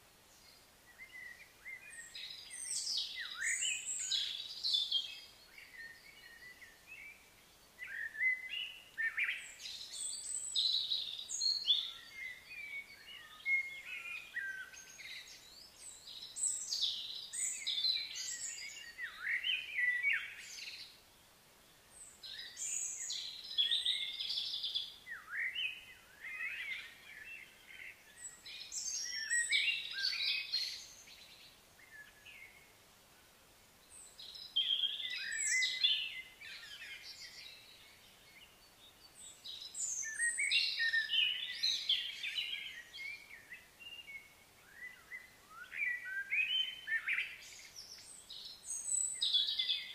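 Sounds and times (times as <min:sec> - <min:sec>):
songbirds singing and chirping: 0:00.0 - 0:49.9.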